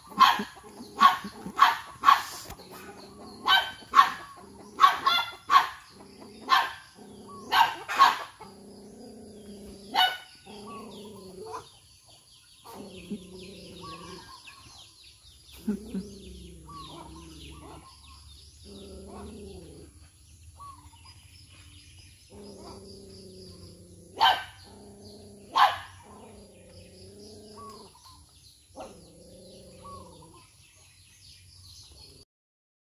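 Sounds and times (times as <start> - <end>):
dog barking: 0.0 - 2.5, 3.4 - 8.4, 9.9 - 10.8, 24.1 - 24.7, 25.4 - 26.3
small birds chirping: 0.0 - 32.2
dog growling: 2.2 - 11.8, 12.6 - 14.7, 15.5 - 20.2, 22.2 - 28.1, 28.7 - 30.6.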